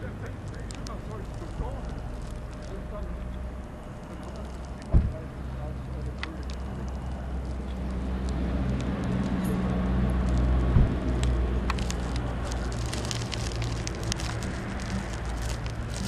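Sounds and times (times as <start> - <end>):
crackling clicks: 0.0 - 16.0
low hum: 0.0 - 16.0
thump: 4.9 - 5.2.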